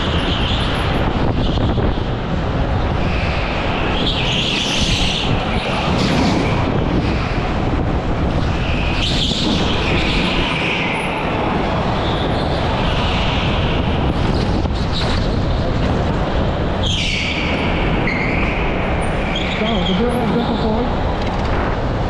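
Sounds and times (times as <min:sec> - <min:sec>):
go-kart engine at racing speed: 0:00.0 - 0:22.0
wind rushing over microphone: 0:00.0 - 0:22.0.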